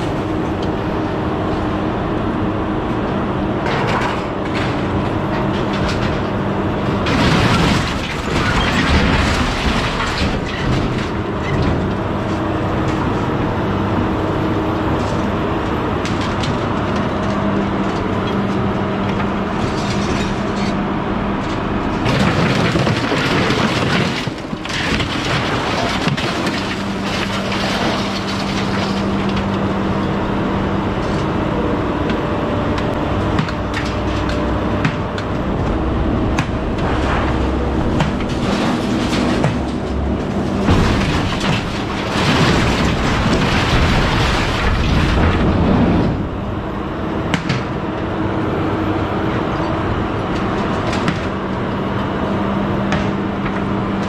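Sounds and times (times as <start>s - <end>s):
loader engine droning: 0.0s - 54.0s
grapple handling scrap metal: 3.6s - 12.4s, 21.4s - 30.0s, 33.1s - 46.4s.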